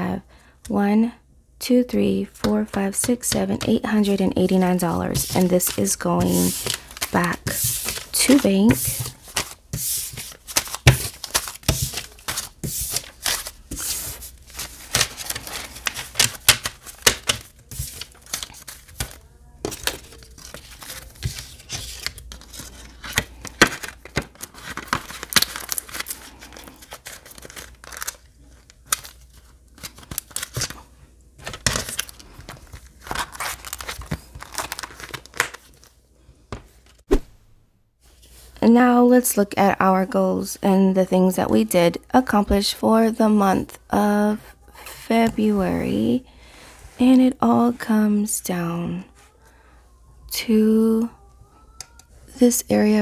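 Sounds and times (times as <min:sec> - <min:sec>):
banknotes rustling and crinkling: 0:02.4 - 0:37.0.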